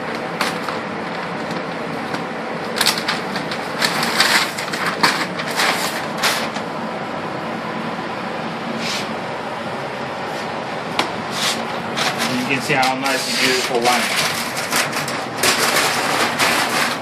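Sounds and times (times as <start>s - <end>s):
masking paper and tape crinkling: 2.6s - 6.7s, 11.3s - 17.0s.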